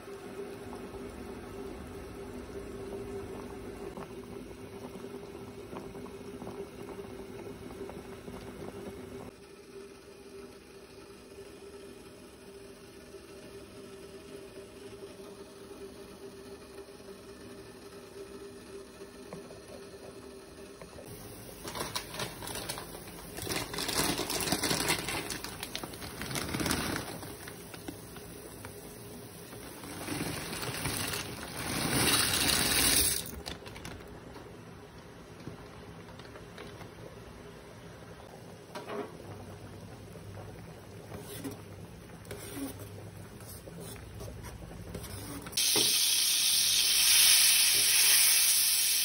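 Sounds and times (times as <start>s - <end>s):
water boiling and bubbling: 0.0s - 10.2s, 19.1s - 49.0s
plastic bag crinkling: 21.5s - 28.3s, 29.5s - 34.4s.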